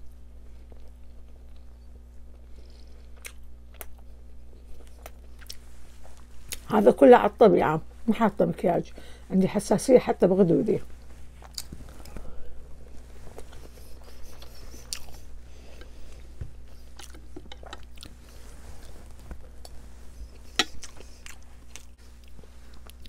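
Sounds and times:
faint steady hum: 0:00.0 - 0:23.0
person chewing food: 0:00.4 - 0:06.7, 0:11.3 - 0:23.0.

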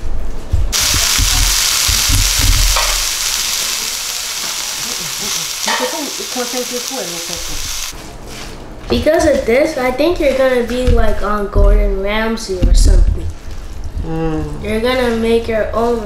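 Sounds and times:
vegetables sizzling in a skillet: 0:00.7 - 0:08.0.

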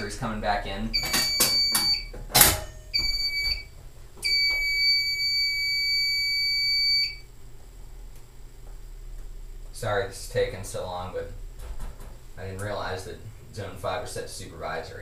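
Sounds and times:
high-pitched alarm panel tone: 0:00.0 - 0:00.3, 0:00.9 - 0:07.3.

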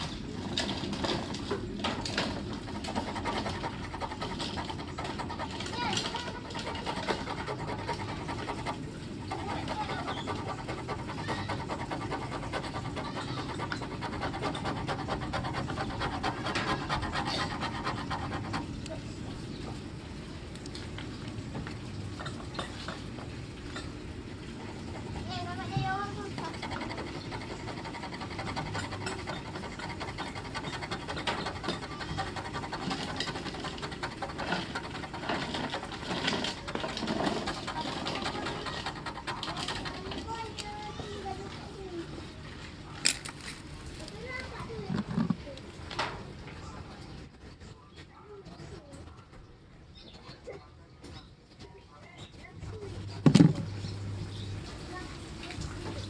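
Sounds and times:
metal blade scraping car paint: 0:00.0 - 0:18.8, 0:24.7 - 0:41.3.

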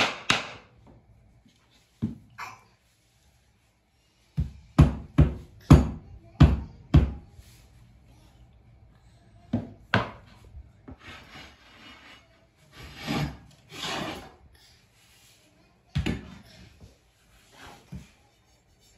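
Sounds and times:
tools scraping on floor: 0:10.3 - 0:14.4.

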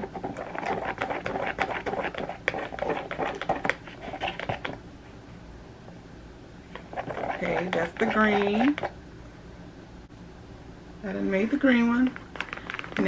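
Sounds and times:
whisk clicking against plastic jug: 0:06.7 - 0:08.9.

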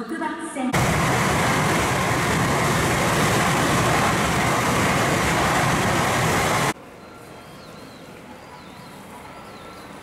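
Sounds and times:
train passing at speed: 0:00.7 - 0:06.8.

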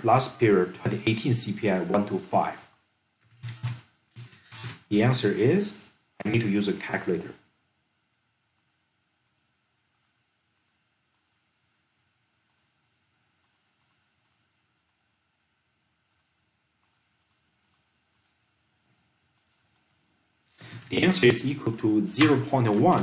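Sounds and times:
faint clicks of mouse or keys: 0:13.4 - 0:15.1.

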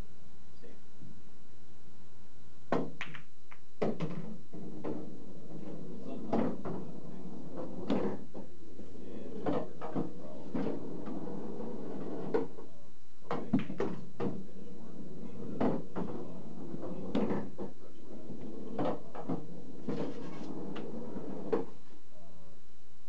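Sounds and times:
cue striking ball: 0:02.7 - 0:05.0, 0:13.3 - 0:14.5
pool balls clacking: 0:02.7 - 0:08.5, 0:09.2 - 0:12.6, 0:13.3 - 0:21.8.

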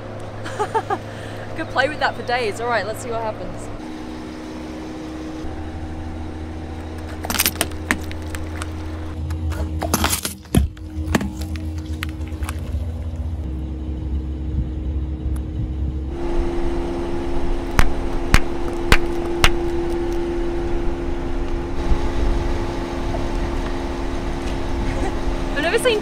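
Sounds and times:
car engine humming: 0:00.0 - 0:26.0
tubes bursting with pops: 0:17.6 - 0:20.2.

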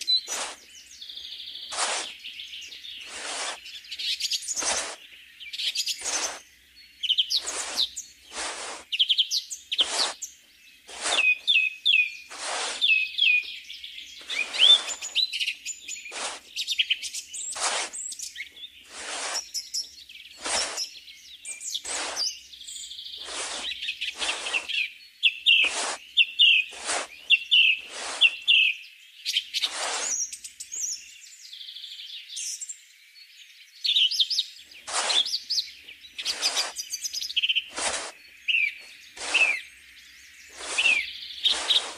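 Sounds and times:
shovel scraping sand: 0:00.0 - 0:00.8, 0:01.6 - 0:06.5, 0:07.3 - 0:09.0, 0:09.7 - 0:13.4, 0:14.1 - 0:24.8, 0:25.5 - 0:28.7, 0:29.6 - 0:30.9, 0:34.8 - 0:39.8, 0:40.4 - 0:41.9
birdsong chirping: 0:00.0 - 0:41.9.

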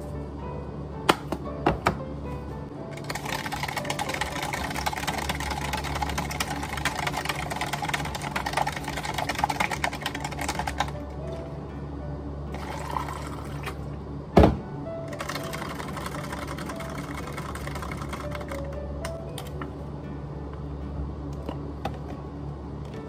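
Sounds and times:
water pouring into cup: 0:12.5 - 0:13.7.

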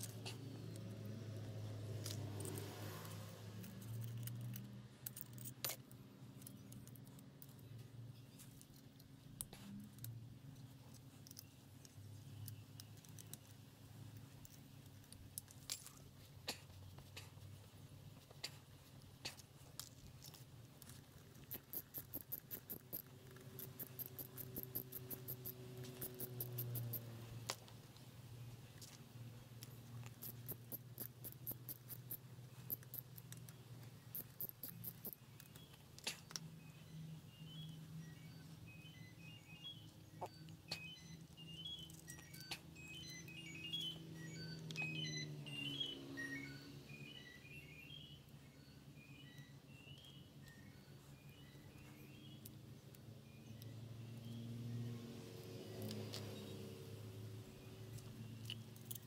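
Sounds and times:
metallic clicks of hand tools: 0:19.2 - 0:27.6, 0:57.9 - 0:59.0.

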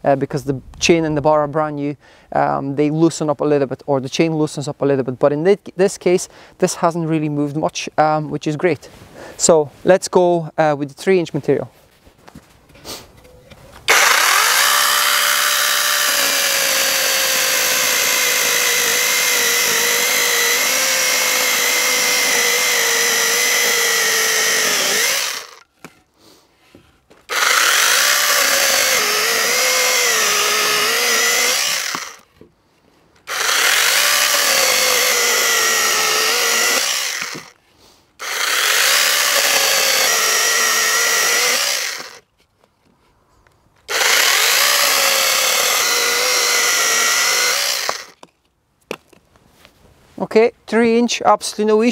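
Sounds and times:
mini chainsaw cutting logs: 0:13.8 - 0:25.7, 0:27.2 - 0:32.3, 0:33.2 - 0:37.6, 0:38.2 - 0:42.3, 0:43.9 - 0:48.3.

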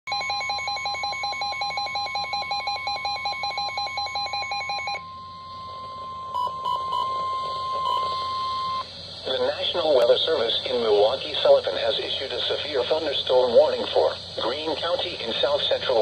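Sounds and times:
rapid electronic alarm beeps: 0:00.1 - 0:08.9
short beeps: 0:00.1 - 0:08.9
steady warning tone: 0:00.1 - 0:16.0
radio receiver hiss: 0:07.0 - 0:16.0.

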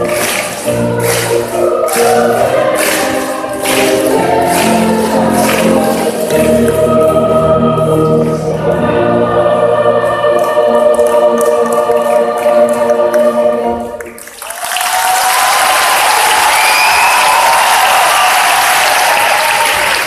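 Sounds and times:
applause: 0:00.0 - 0:06.5, 0:14.0 - 0:20.0
choir singing a long chord: 0:00.0 - 0:14.3.

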